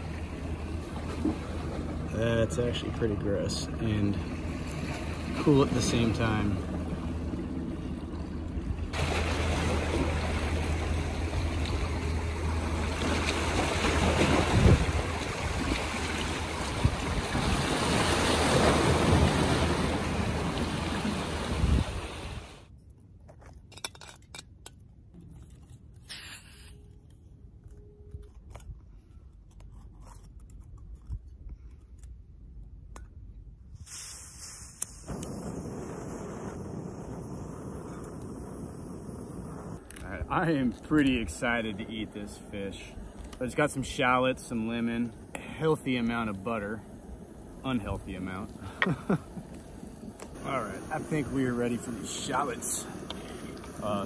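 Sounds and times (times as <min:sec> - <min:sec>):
surf washing against rocks: 0:00.0 - 0:07.1, 0:08.8 - 0:22.7, 0:39.4 - 0:54.0
wind rumbling on microphone: 0:06.0 - 0:22.6.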